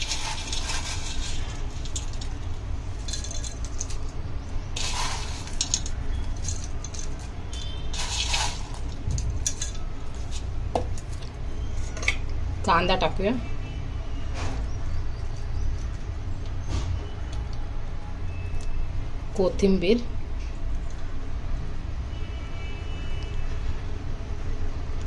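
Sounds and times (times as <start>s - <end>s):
fried snack rustling onto a dish: 0.0s - 12.0s
utensils clinking on dishware: 3.0s - 10.4s.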